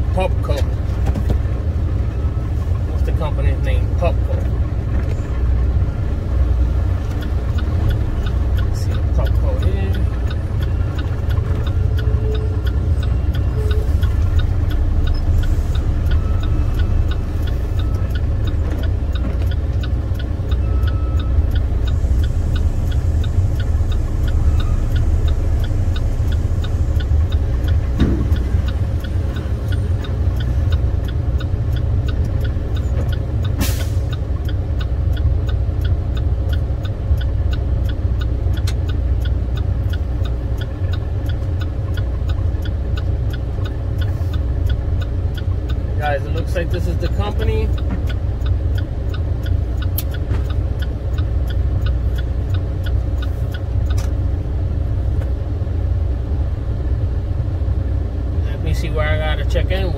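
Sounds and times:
diesel truck engine running: 0.0 - 59.9
faint steady ticking: 0.0 - 59.9.

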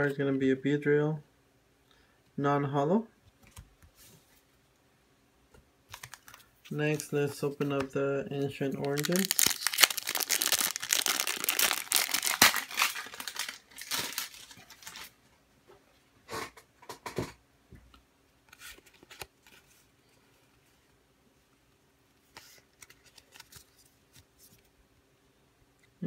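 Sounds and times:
cards rustling and tapping: 5.9 - 7.9
foil wrapper tearing and crinkling: 8.8 - 15.2.

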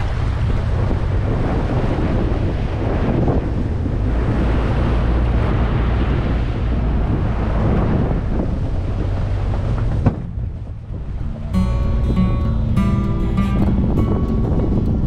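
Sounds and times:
low engine rumble: 0.0 - 15.0
water rushing and splashing: 0.0 - 15.0
wind buffeting microphone: 0.0 - 15.0.

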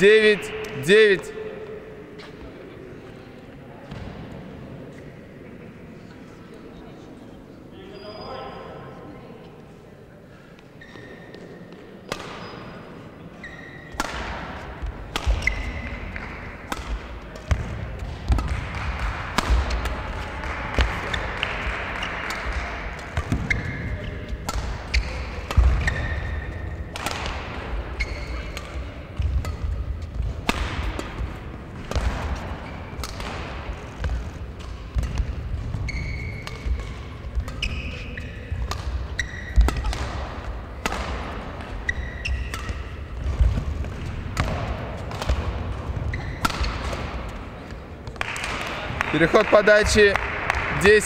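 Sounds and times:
shoe squeaks: 7.8 - 8.8, 10.8 - 11.7, 12.4 - 12.8, 13.4 - 14.0, 15.3 - 16.0, 23.4 - 26.7, 27.9 - 28.6, 35.7 - 39.8, 41.6 - 43.0, 46.0 - 46.5
racket hitting shuttlecock: 12.0 - 12.6, 13.8 - 48.9.

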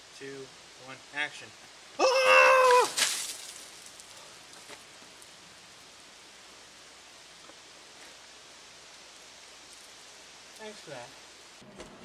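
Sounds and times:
water dripping onto grass: 2.5 - 6.3
water splash: 2.6 - 3.9.

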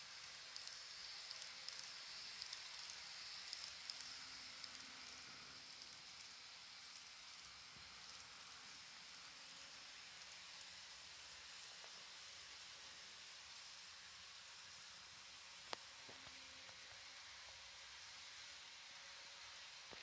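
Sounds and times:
model train rolling on track: 0.0 - 20.0
light wheel ticks: 0.2 - 5.1.

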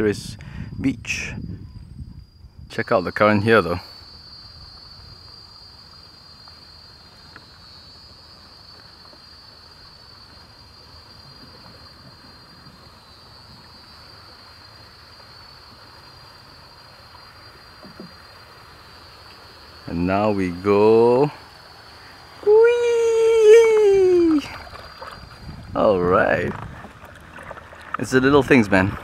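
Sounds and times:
insect chorus: 0.0 - 29.0
flowing water: 3.1 - 29.0.

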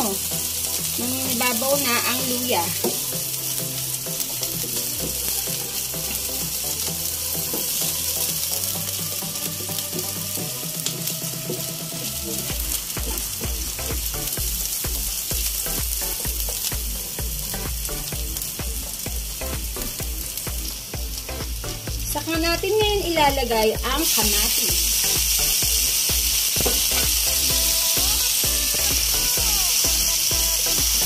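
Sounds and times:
background music with beat: 0.0 - 31.0
food sizzling in hot oil: 0.0 - 31.0.

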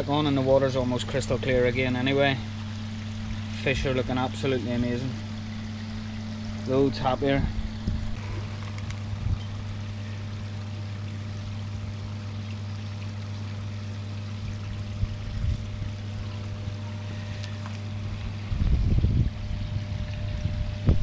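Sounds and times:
water running over waterfall: 0.0 - 18.5
pump electrical hum: 0.0 - 21.0.

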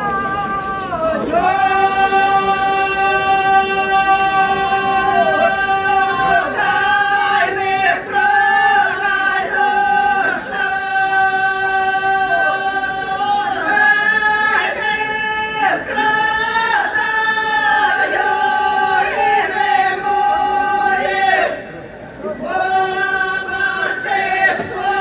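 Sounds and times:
women singing folk song unaccompanied: 22.3 - 25.0.

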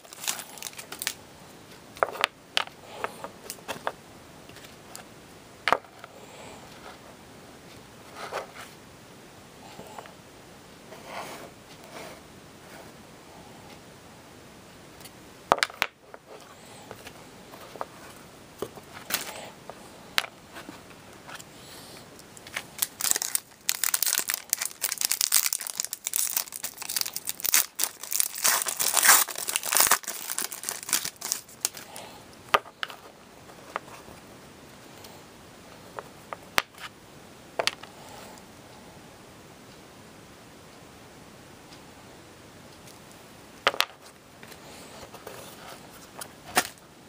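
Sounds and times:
foil wrapper crinkling and tearing: 0.0 - 1.2, 22.4 - 31.9
cards clicking and tapping: 15.5 - 16.0.

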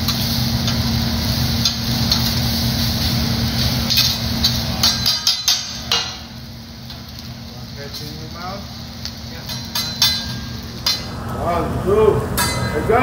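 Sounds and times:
food sizzling: 0.0 - 13.0
spatula clacking on griddle: 1.6 - 2.4, 3.8 - 7.2, 9.0 - 11.1.

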